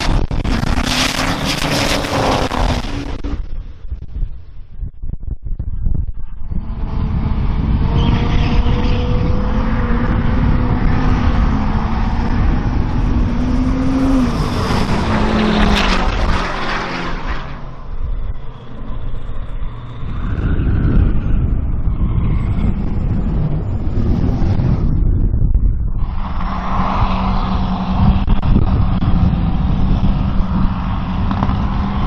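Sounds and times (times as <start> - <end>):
diesel truck engine racing: 0.0 - 3.7, 6.5 - 25.2, 26.0 - 32.0
loud rushing noise: 0.0 - 4.6, 6.4 - 32.0.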